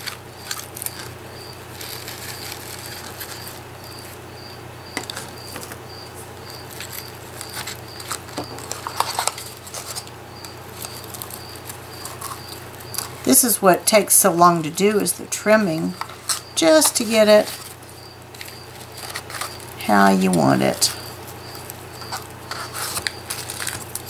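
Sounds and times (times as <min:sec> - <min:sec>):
paper and flowers rustling: 0:00.0 - 0:04.2, 0:05.0 - 0:24.0.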